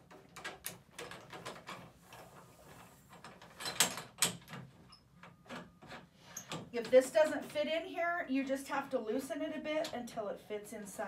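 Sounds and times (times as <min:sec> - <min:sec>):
metal clicks and knocks: 0:00.0 - 0:01.9, 0:03.1 - 0:07.0.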